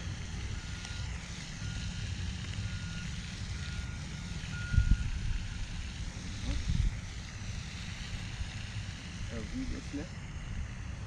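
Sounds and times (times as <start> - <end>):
reversing alarm beeping: 0.0 - 6.6
wind on microphone: 4.7 - 7.5.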